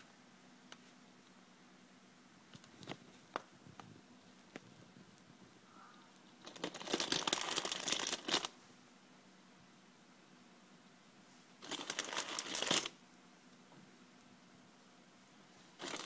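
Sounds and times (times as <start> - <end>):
hamster crunching snack: 6.2 - 8.5, 11.6 - 13.0, 15.8 - 16.0.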